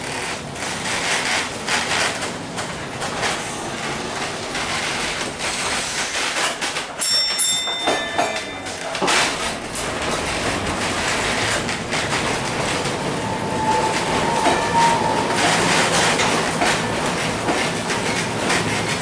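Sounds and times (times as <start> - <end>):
streetcar rumbling on track: 0.0 - 19.0
wheels clacking and rattling: 0.0 - 19.0
thin high squeal: 13.2 - 15.5.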